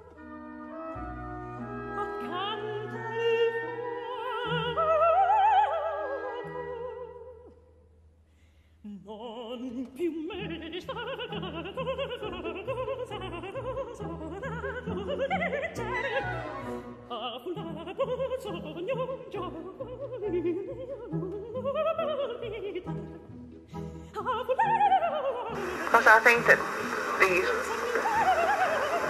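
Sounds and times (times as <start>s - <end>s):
operatic singing with vibrato: 8.9s - 29.0s.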